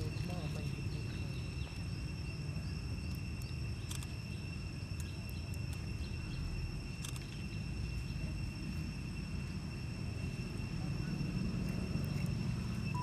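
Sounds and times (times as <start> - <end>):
insect chorus: 0.0 - 13.0.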